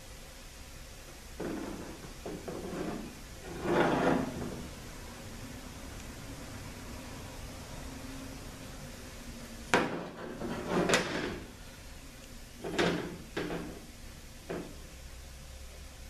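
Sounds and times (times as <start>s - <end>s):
metal parts knocking on workbench: 9.8s - 11.5s, 12.6s - 13.8s.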